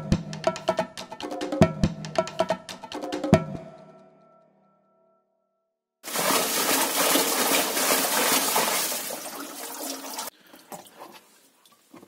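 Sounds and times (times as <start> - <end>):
water sloshing in washing machine: 6.0 - 11.3.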